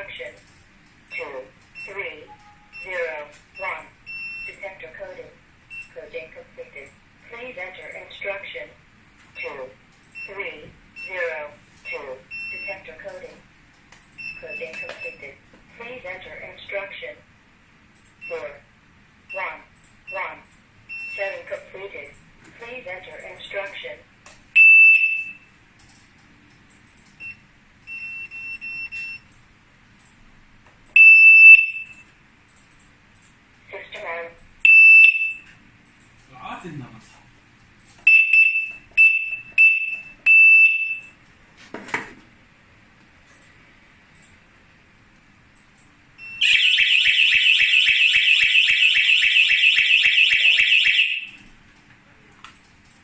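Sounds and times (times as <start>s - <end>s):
piercing electronic alarm beeps: 1.1s - 4.6s, 5.7s - 6.0s, 9.4s - 10.4s, 11.0s - 11.2s, 11.8s - 12.9s, 14.2s - 15.3s, 20.1s - 21.5s, 24.6s - 25.5s, 27.2s - 29.3s, 31.0s - 32.1s, 34.6s - 35.5s, 38.1s - 41.2s, 46.2s - 51.4s
warbling alarm siren: 46.4s - 51.4s.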